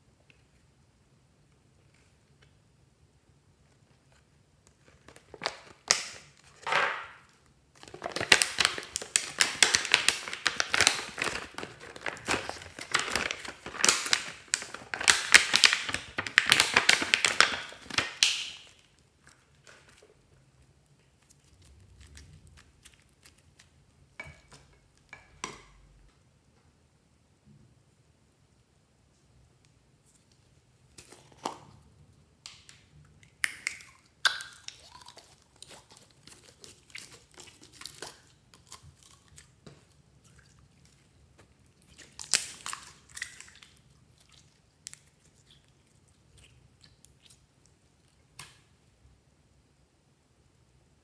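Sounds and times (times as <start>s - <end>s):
plastic packaging crinkling: 4.8s - 23.8s, 41.3s - 43.8s.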